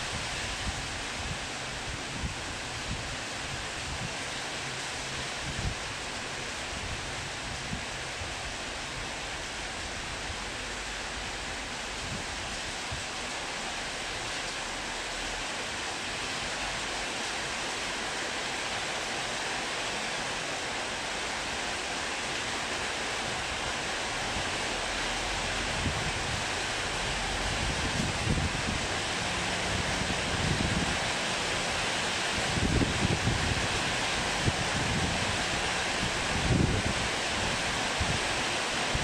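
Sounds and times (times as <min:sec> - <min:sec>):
heavy rain pouring: 0:00.0 - 0:39.0
wind buffeting microphone: 0:27.4 - 0:29.0, 0:32.4 - 0:33.8, 0:36.0 - 0:38.2.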